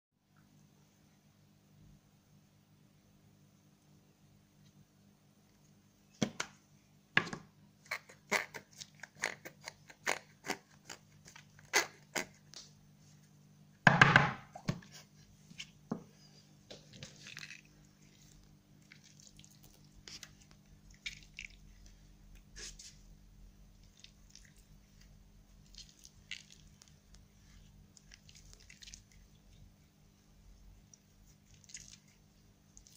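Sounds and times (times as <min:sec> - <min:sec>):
slime squishing: 0:16.7 - 0:23.0, 0:23.6 - 0:32.9.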